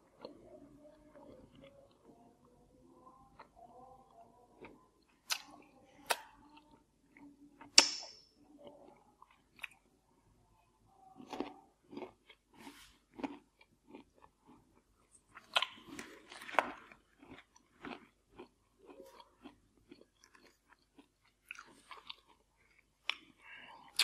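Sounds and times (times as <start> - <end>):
crunching and chewing chips: 11.1 - 24.0.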